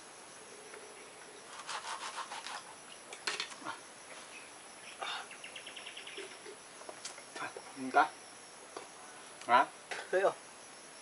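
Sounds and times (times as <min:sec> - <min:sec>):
knife scraping coconut: 0:01.5 - 0:02.7.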